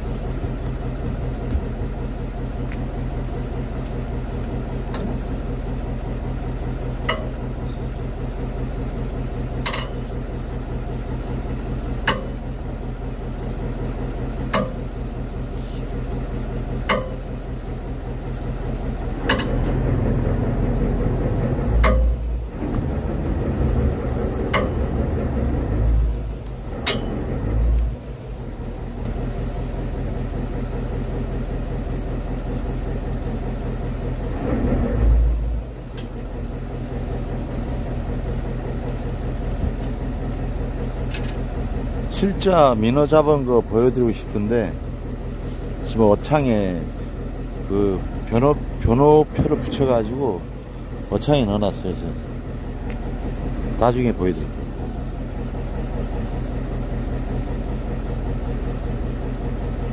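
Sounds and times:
boat engine idling: 0.0s - 59.9s
low rumble: 0.0s - 59.9s.

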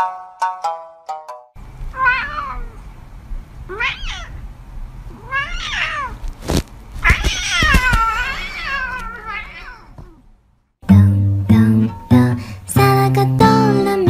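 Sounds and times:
cat meowing: 1.9s - 2.8s, 3.7s - 4.4s, 5.1s - 10.3s
sharp knocks: 7.0s - 8.1s.

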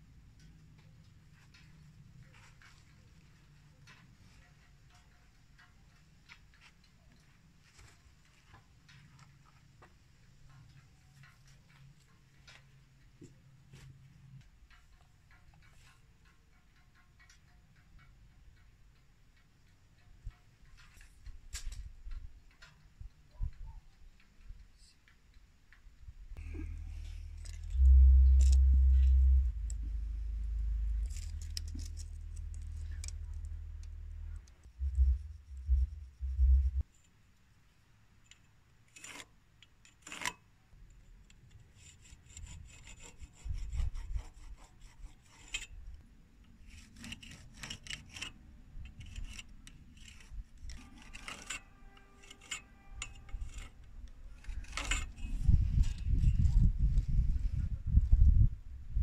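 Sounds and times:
low rumble: 26.4s - 36.8s
measuring tools clicking: 26.5s - 36.8s
pencil scratching on wood: 41.8s - 45.7s, 46.6s - 48.3s, 49.0s - 53.8s.

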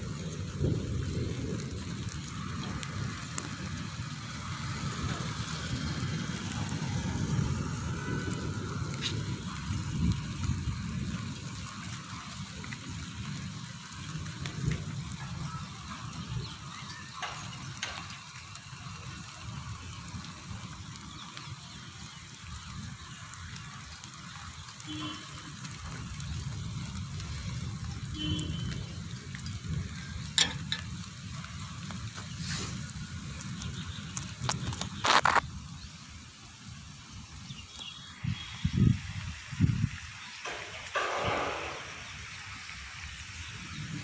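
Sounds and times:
steady rain falling: 0.0s - 44.0s
low rumble: 40.4s - 42.4s.

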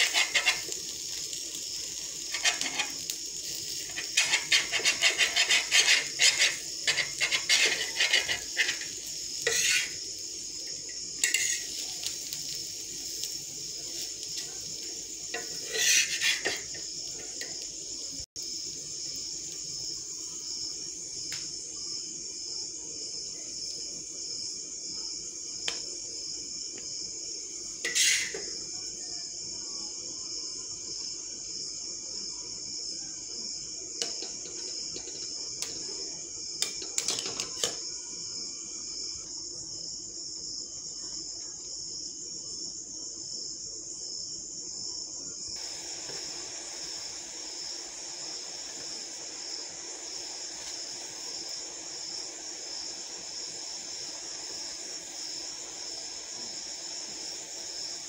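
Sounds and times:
insects chirping: 0.0s - 58.0s
metal spatula clinking on pan: 11.2s - 11.8s.

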